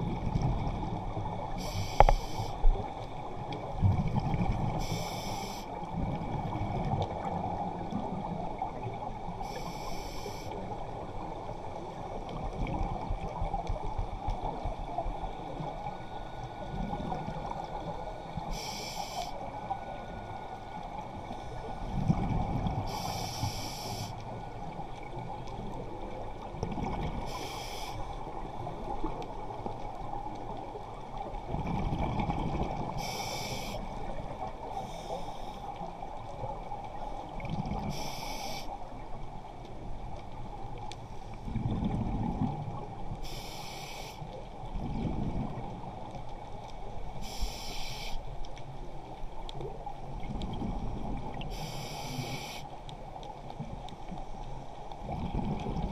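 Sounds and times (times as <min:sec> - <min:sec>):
exhaled bubbles hissing: 0:00.0 - 0:02.9, 0:03.8 - 0:08.2, 0:08.8 - 0:10.6, 0:14.5 - 0:24.6, 0:26.1 - 0:29.2, 0:30.9 - 0:39.1, 0:43.2 - 0:44.2, 0:47.2 - 0:48.2, 0:50.2 - 0:52.8
underwater rumble: 0:00.0 - 0:55.9.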